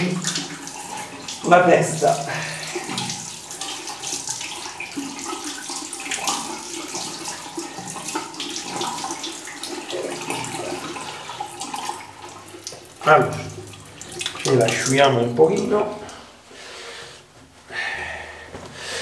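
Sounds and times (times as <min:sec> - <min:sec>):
water running from a tap: 0:00.0 - 0:16.2
water splashing unevenly: 0:00.0 - 0:16.3.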